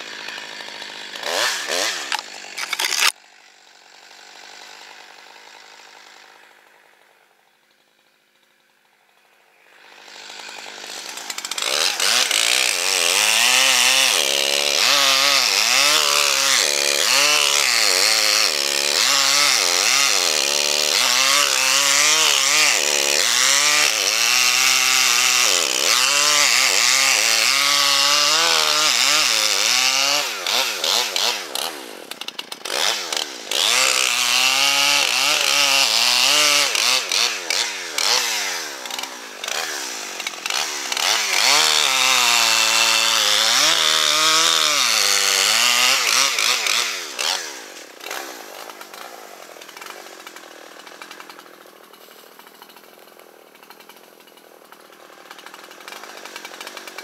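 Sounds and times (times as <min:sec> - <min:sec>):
chainsaw cutting wood: 0:00.0 - 0:57.0.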